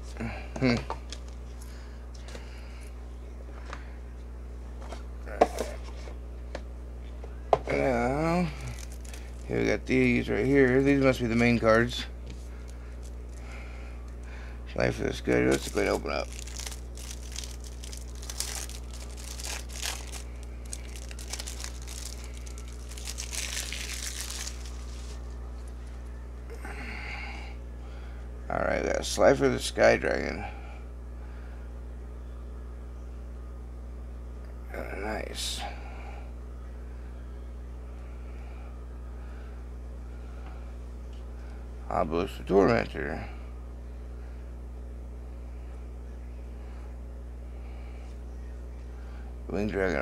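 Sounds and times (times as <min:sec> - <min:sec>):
low steady hum: 0:00.0 - 0:50.0
plastic wrapping crinkling and tearing: 0:08.6 - 0:09.6, 0:12.4 - 0:13.4, 0:15.3 - 0:25.8.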